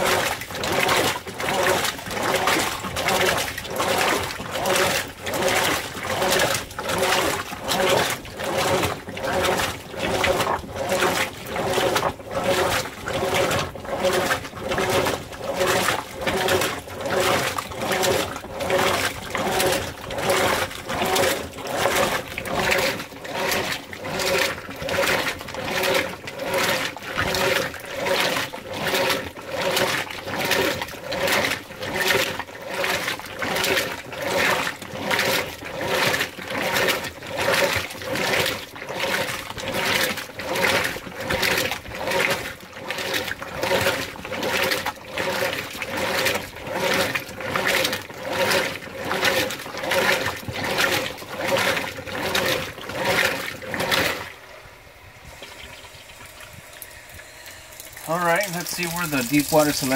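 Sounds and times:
washer swishing clothes and water: 0.0 - 59.9
drive motor humming: 51.4 - 59.9.

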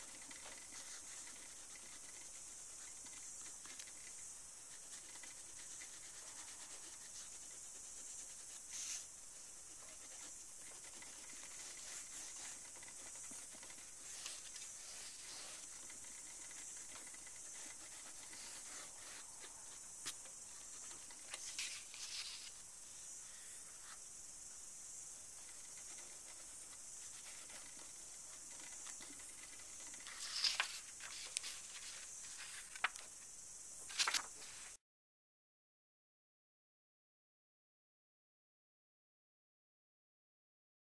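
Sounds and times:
chalk scratching on paper: 0.0 - 22.6, 25.4 - 32.8
steady high hiss: 0.0 - 34.8
paper sheet rustling: 21.2 - 22.6, 28.6 - 33.1, 33.9 - 34.8.

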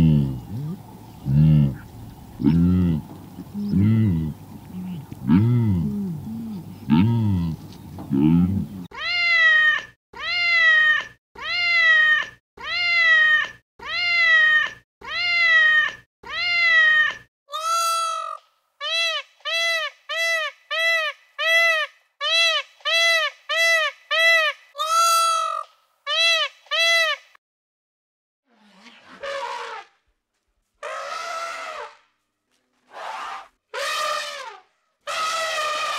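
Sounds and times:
high-pitched mewing animal calls: 0.0 - 7.6, 33.0 - 35.9.

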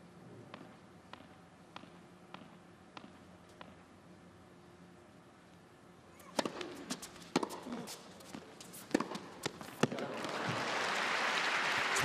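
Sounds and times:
ball bouncing on court: 0.5 - 3.8, 6.2 - 10.1
racket striking tennis ball: 6.2 - 10.1
crowd applause: 10.0 - 12.0.

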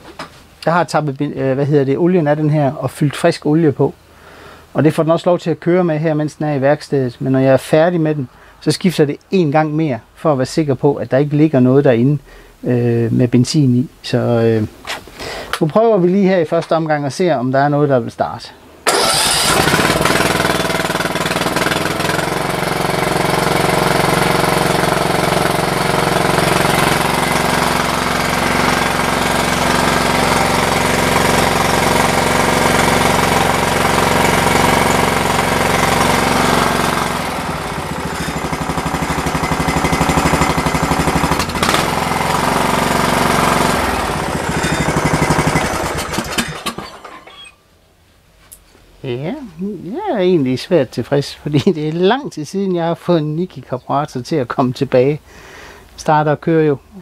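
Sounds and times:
riding mower engine running: 18.8 - 47.6.

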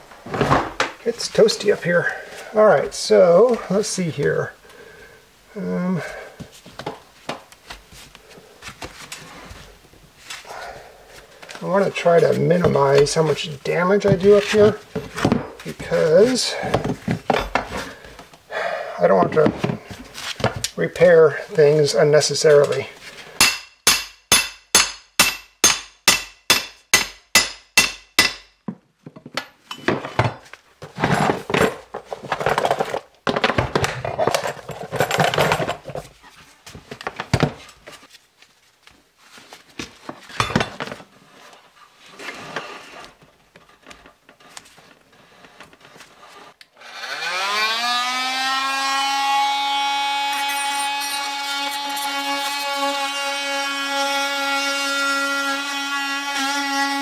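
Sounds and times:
rotary tool whining: 46.8 - 54.7.

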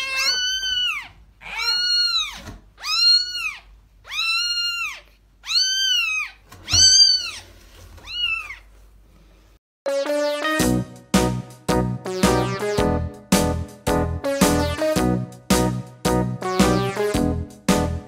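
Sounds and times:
kitten meowing: 0.0 - 7.4, 8.0 - 8.6.

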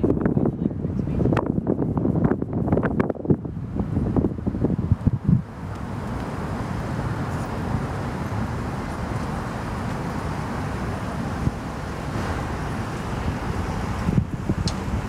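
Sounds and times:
wind rumbling on microphone: 0.0 - 15.0
cars passing: 3.6 - 15.0.

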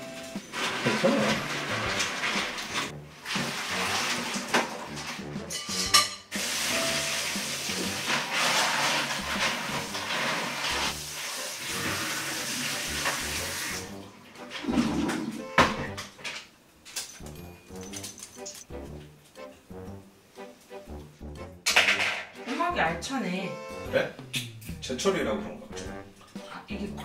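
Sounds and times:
tap water running into a sink: 0.1 - 15.9
shells clattering: 16.9 - 18.7.

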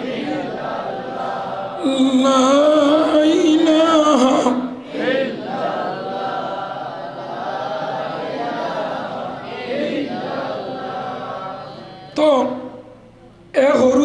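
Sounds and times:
man chanting a melodic recitation: 1.8 - 4.8, 10.8 - 14.0.

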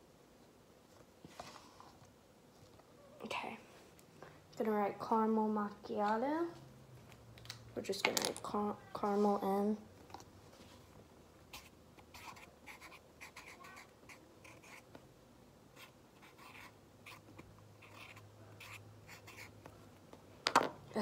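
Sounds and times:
marker writing on a cup: 11.5 - 14.9, 15.8 - 19.6.

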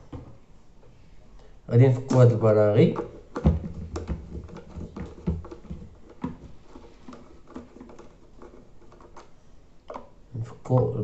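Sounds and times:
dull thumps: 2.9 - 9.2
plastic kettle clicks and knocks: 2.9 - 9.3, 9.9 - 10.2.

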